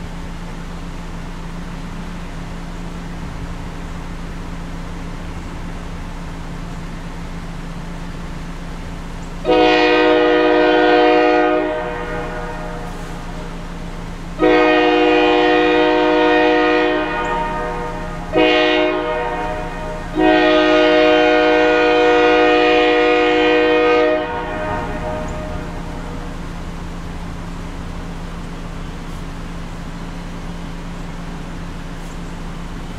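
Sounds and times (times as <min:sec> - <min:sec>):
steady low drone: 0:00.0 - 0:32.9
locomotive air horn blasts: 0:09.4 - 0:27.4.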